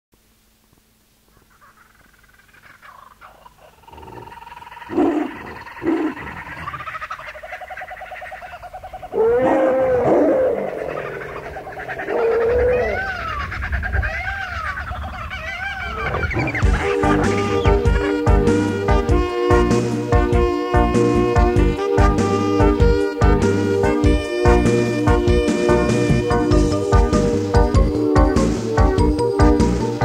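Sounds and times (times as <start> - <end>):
loud low animal calls: 1.2 - 18.6, 24.6 - 27.8
overlapping animal cries: 1.3 - 19.0.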